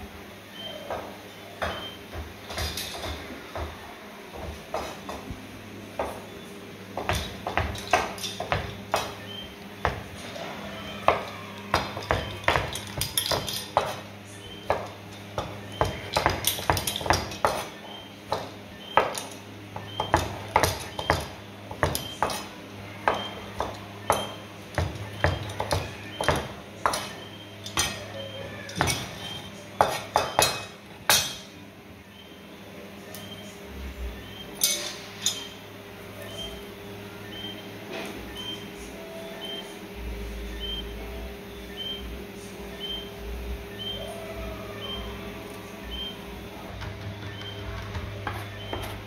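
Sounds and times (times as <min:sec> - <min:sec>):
steady low hum: 0:00.0 - 0:49.0
knife chopping on cutting board: 0:29.8 - 0:31.2.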